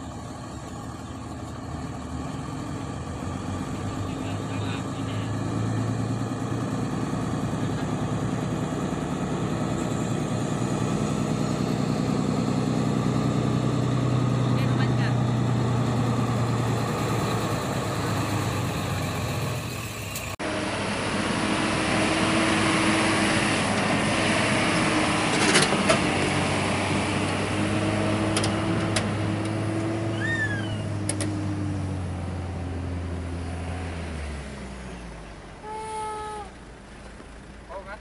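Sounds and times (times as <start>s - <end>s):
diesel truck engine running: 0.0s - 38.0s
short high squeaks: 30.1s - 31.0s.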